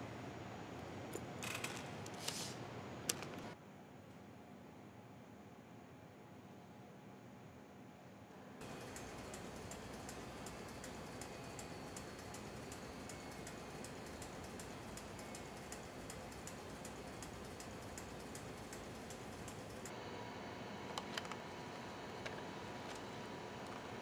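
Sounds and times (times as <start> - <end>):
faint steady hum: 0.0 - 24.0
keyboard keys clicking: 8.6 - 19.9.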